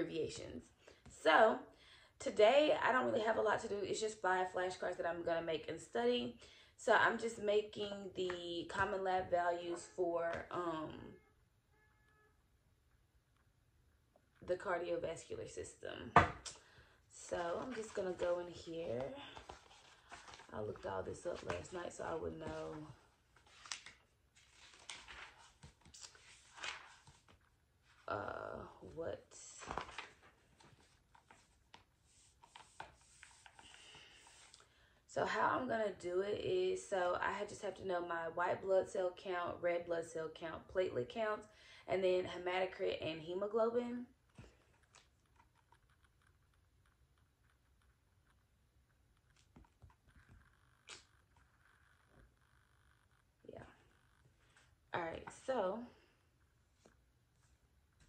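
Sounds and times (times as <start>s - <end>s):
book pages rustling: 17.3s - 28.1s, 29.6s - 34.6s.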